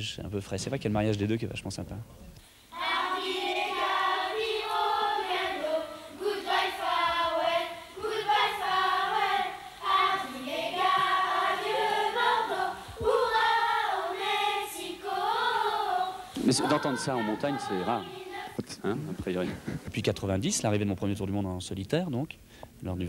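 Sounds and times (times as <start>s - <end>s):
children's choir singing: 2.7s - 18.8s.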